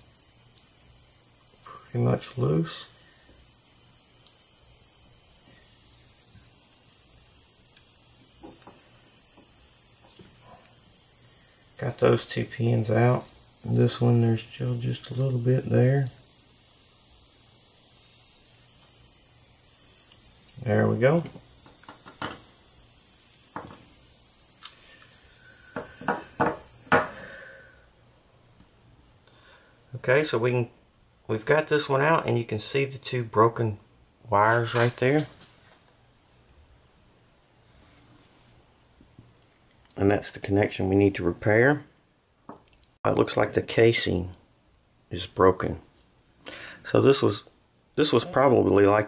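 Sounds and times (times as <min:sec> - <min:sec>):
high-pitched hiss: 0:00.0 - 0:28.0, 0:45.1 - 0:49.0
electronic parts clicking on bench: 0:21.2 - 0:22.8.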